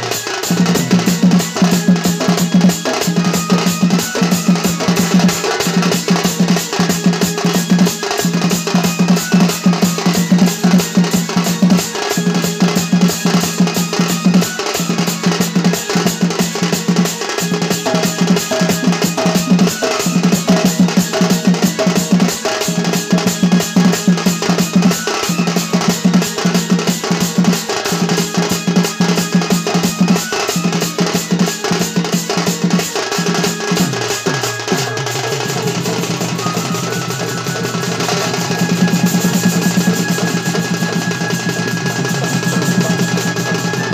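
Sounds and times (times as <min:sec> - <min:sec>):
barrel drum played by hand: 0:00.0 - 0:43.9.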